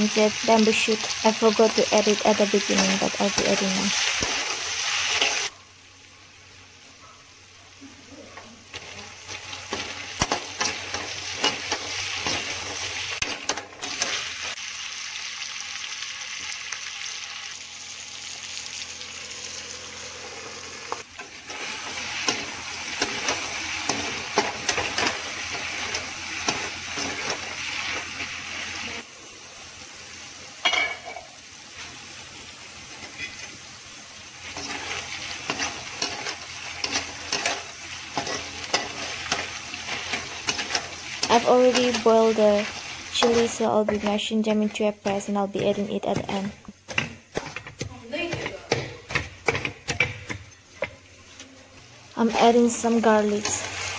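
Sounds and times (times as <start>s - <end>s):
meat sizzling in a wok: 0.0s - 53.9s
metal spatula scraping a pan: 32.9s - 33.7s, 34.4s - 51.5s.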